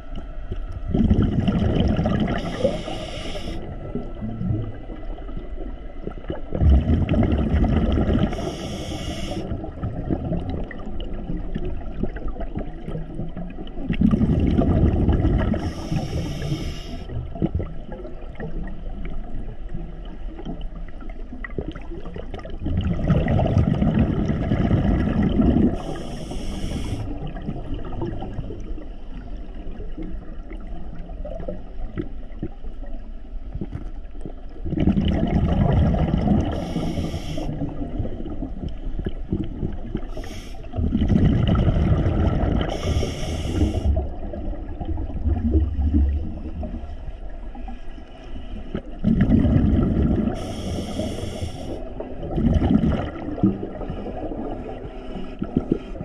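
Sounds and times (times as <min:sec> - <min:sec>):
diver exhaling bubbles: 0:00.9 - 0:04.8, 0:06.2 - 0:18.6, 0:21.6 - 0:28.8, 0:34.6 - 0:46.9, 0:48.8 - 0:54.8
regulator inhalation hiss: 0:02.4 - 0:03.7, 0:08.3 - 0:09.5, 0:15.6 - 0:17.1, 0:25.8 - 0:27.2, 0:36.5 - 0:37.7, 0:40.1 - 0:40.8, 0:42.7 - 0:44.0, 0:50.4 - 0:51.8.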